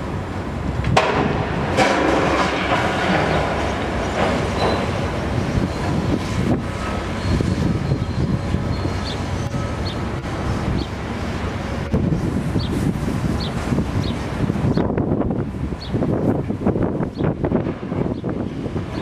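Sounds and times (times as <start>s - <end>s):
excavator diesel engines rumbling: 0.0s - 19.0s
concrete and metal crunching: 0.9s - 7.5s.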